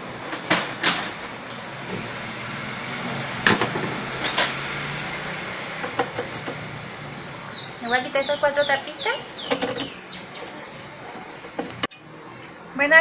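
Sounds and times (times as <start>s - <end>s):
bird chirping: 4.6s - 11.8s.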